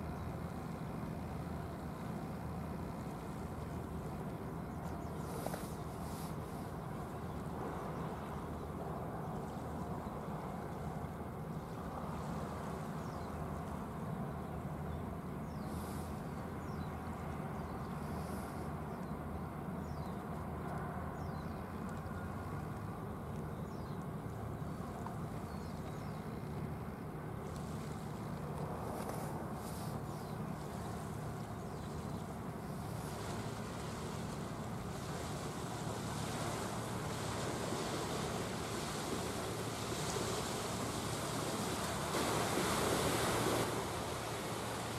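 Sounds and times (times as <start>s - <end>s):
boat engine rumble: 0.0s - 44.9s
hiss of wind and water: 0.0s - 44.9s
boat engine droning: 24.1s - 44.9s
water wash: 32.2s - 44.9s.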